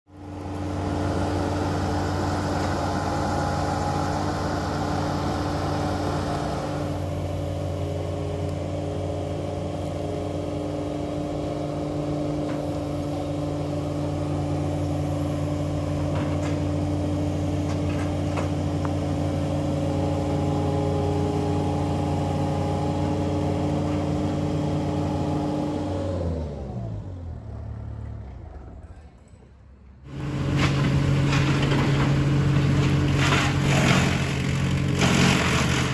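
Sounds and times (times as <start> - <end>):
engine running and winding down: 19.2 - 29.2.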